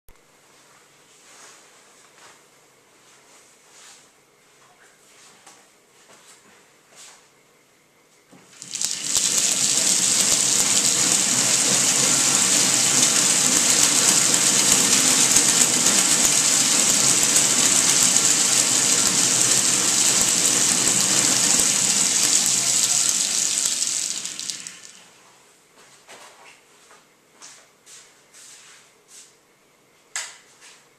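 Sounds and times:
bicycle generator whirring: 0:08.5 - 0:25.2.

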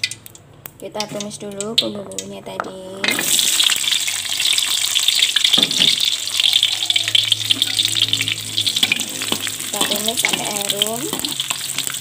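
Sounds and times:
shallots and garlic sizzling in oil: 0:03.0 - 0:12.0.

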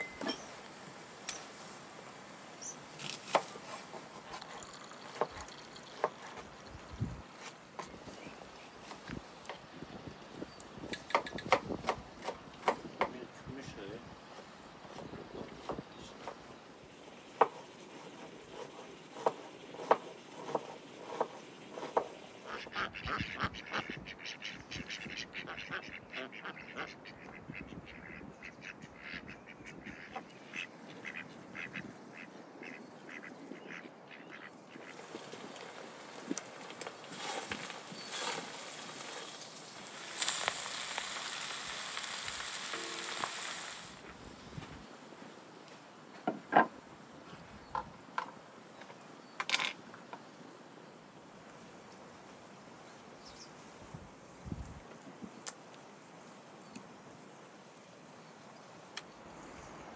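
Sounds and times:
ducks quacking: 0:22.4 - 0:35.0.

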